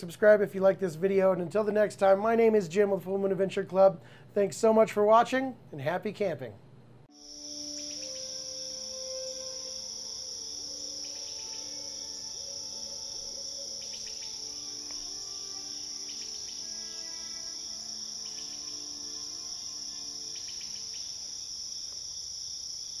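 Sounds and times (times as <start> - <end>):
soft held tones: 7.1 - 21.3
crickets chorus: 7.1 - 23.0.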